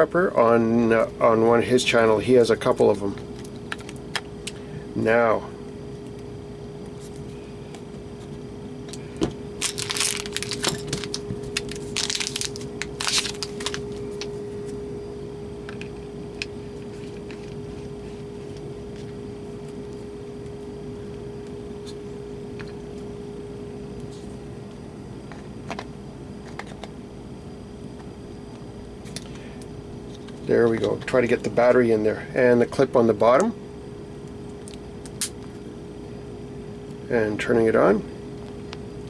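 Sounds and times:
faint steady hum: 0.0s - 39.0s
plastic packaging crinkling: 9.6s - 14.4s.

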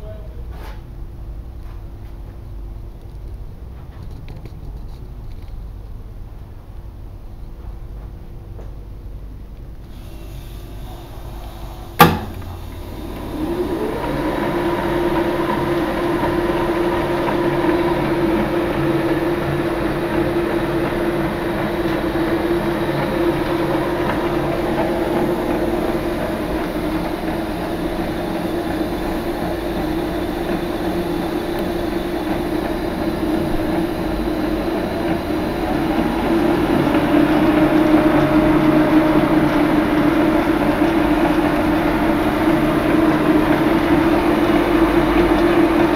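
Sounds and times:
lathe motor humming: 9.9s - 45.9s.

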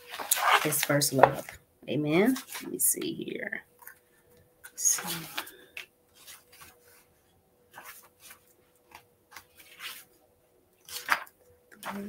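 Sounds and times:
paper pages rustling: 0.0s - 1.6s, 5.0s - 10.2s, 10.8s - 12.0s.

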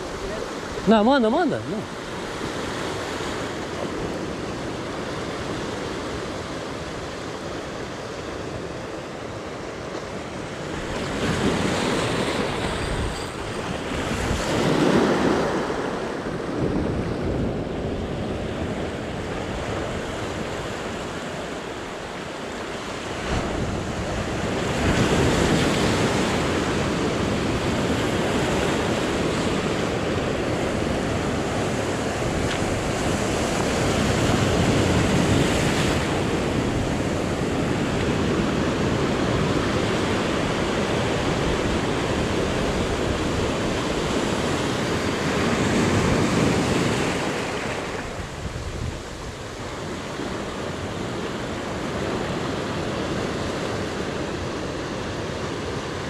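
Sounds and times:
sea waves breaking: 0.0s - 56.0s
wind buffeting microphone: 10.1s - 21.3s.

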